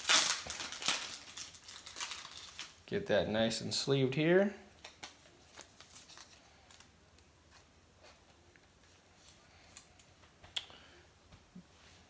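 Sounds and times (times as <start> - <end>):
plastic sleeve rustling: 0.0 - 2.9, 4.8 - 8.2.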